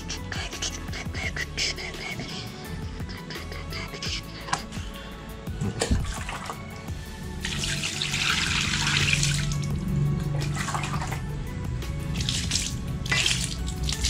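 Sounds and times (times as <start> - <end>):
water splashing onto concrete floor: 7.4 - 9.7, 10.3 - 11.3, 12.1 - 14.0.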